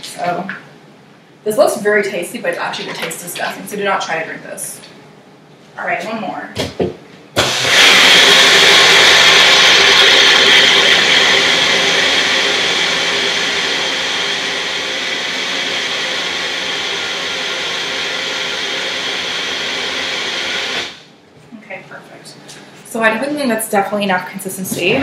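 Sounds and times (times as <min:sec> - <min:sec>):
electric blender running: 0:07.4 - 0:21.1.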